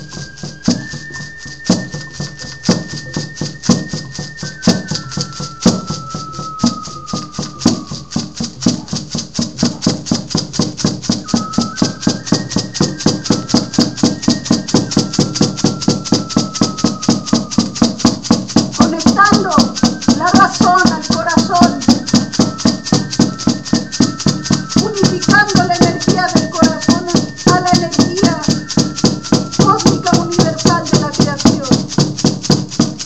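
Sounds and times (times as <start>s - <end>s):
percussion with rattle shimmer: 0.0s - 33.0s
high held sliding tones: 11.0s - 31.8s.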